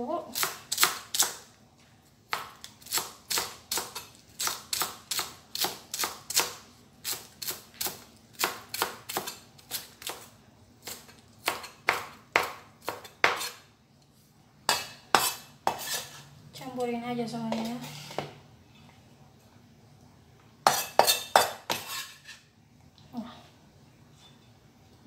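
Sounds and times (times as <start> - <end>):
cleaver chopping on cutting board: 11.4 - 13.5.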